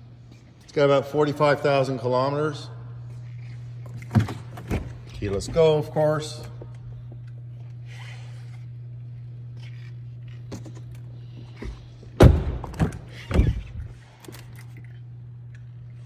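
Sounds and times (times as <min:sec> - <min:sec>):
steady low hum: 0:00.0 - 0:16.0
car door thunk: 0:12.2 - 0:13.1.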